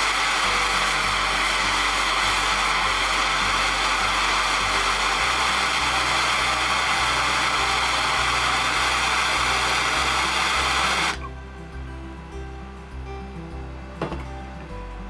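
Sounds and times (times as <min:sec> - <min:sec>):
gas torch flame hissing: 0:00.0 - 0:11.3.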